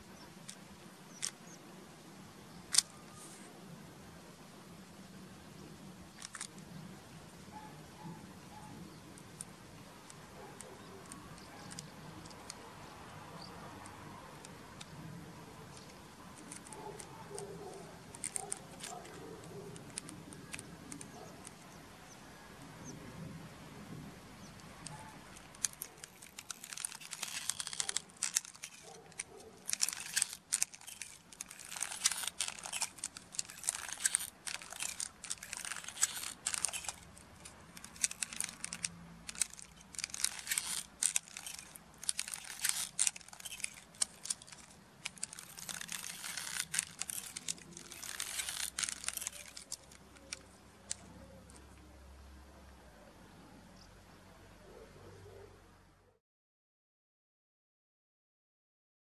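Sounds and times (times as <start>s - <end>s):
plastic hand clicking and rattling: 0.4s - 1.4s, 2.7s - 3.0s, 6.1s - 6.6s, 9.2s - 21.7s, 24.5s - 51.8s.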